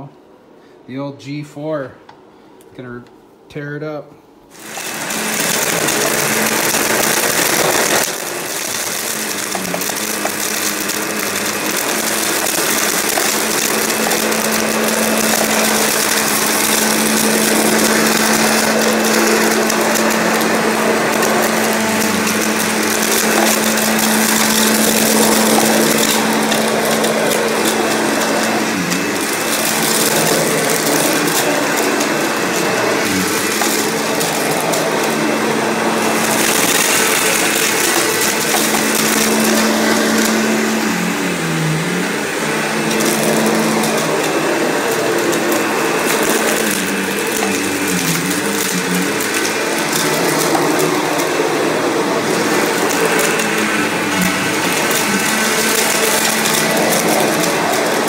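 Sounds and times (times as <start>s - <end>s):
vacuum motor humming: 4.5s - 58.0s
crunching of debris being sucked: 4.6s - 58.0s.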